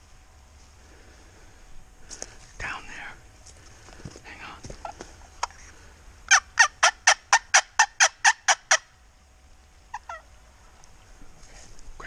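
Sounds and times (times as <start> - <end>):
turkey yelping: 6.3 - 9.0, 9.9 - 10.3.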